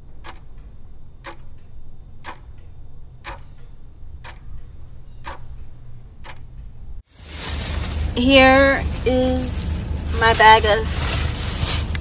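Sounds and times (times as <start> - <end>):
clock ticking: 0.0 - 7.0
low steady hum: 0.0 - 12.0.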